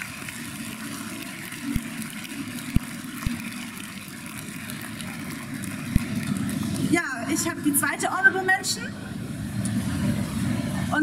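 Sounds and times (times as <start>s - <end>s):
audience applauding: 0.0s - 7.5s
crowd noise in a large hall: 0.0s - 11.0s.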